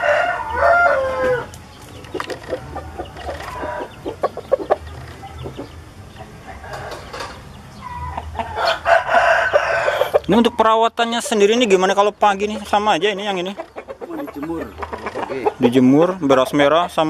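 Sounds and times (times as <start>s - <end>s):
rooster crowing: 0.0s - 1.5s, 2.6s - 4.1s, 7.8s - 10.3s
rooster clucks: 2.1s - 10.5s, 13.1s - 15.8s.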